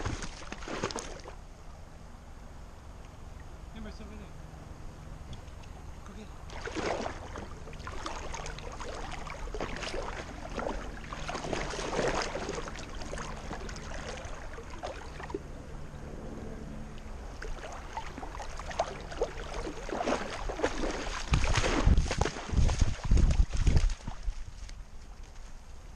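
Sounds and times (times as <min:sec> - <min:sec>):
water sloshing and splashing: 0:00.0 - 0:01.4, 0:05.3 - 0:15.6, 0:17.0 - 0:24.8.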